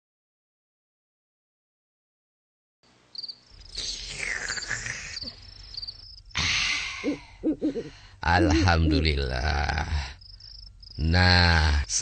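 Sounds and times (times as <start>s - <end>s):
cricket chirping: 3.1s - 12.0s.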